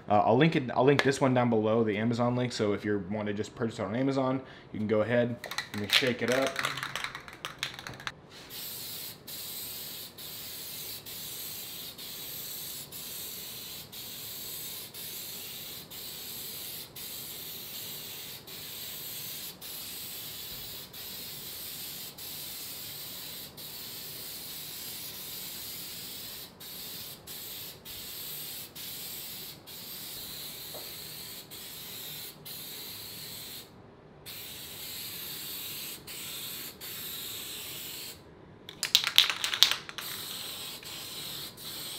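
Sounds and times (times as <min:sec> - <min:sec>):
aerosol can spraying hiss: 0:07.2 - 0:33.7, 0:34.3 - 0:38.2, 0:38.9 - 0:41.9.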